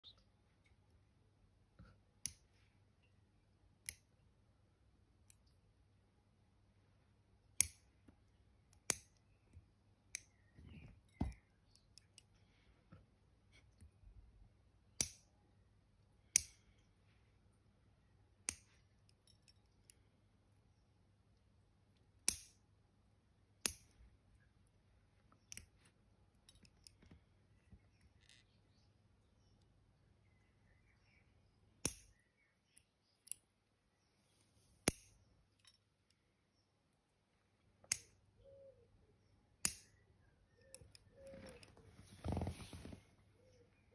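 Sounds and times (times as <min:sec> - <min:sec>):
toenail clipper clicks: 0:31.8 - 0:32.2.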